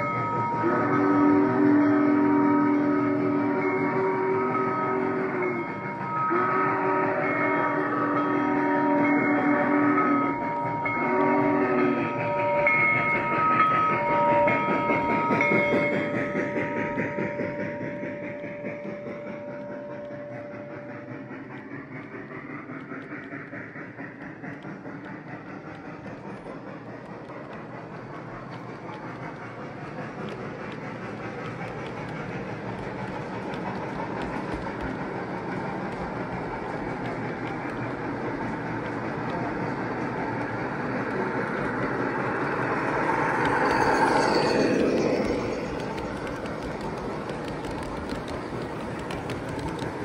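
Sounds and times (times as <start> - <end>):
low steam whistle: 0.0 - 26.4
train wheels clattering on track: 0.0 - 50.0
clicks at rail joints: 21.2 - 50.0.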